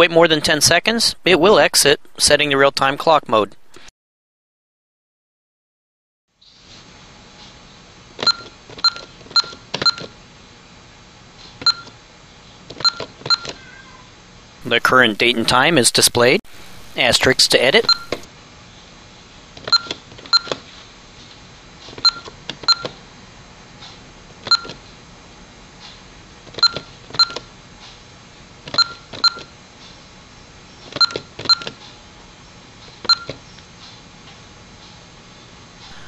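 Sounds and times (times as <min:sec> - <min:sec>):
keypad beeps: 0:08.2 - 0:10.1, 0:11.6 - 0:11.9, 0:12.8 - 0:13.5, 0:17.7 - 0:18.2, 0:19.7 - 0:20.6, 0:22.0 - 0:22.9, 0:24.5 - 0:24.8, 0:26.6 - 0:27.4, 0:28.8 - 0:29.5, 0:31.0 - 0:31.8, 0:33.1 - 0:33.4.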